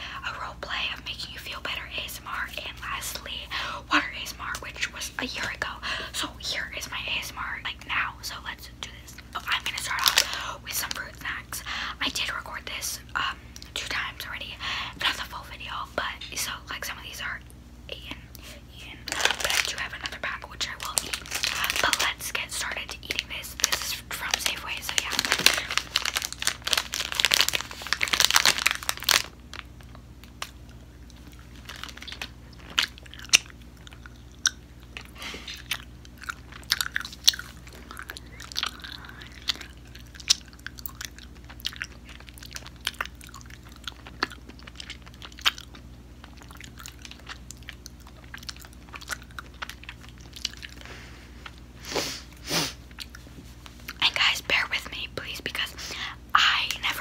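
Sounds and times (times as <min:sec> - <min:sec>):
plastic pouch crinkling: 0:09.5 - 0:11.1, 0:19.0 - 0:30.6, 0:31.2 - 0:33.4
close-up chewing: 0:24.2 - 0:51.6, 0:52.9 - 0:54.0.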